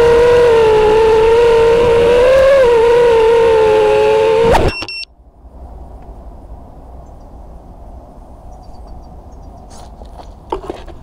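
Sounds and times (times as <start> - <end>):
wind rumble on microphone: 0.0 - 4.7.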